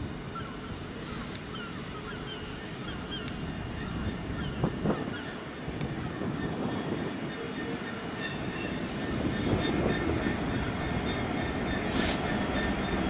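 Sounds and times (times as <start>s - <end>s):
diesel locomotive rumbling: 2.7s - 13.0s.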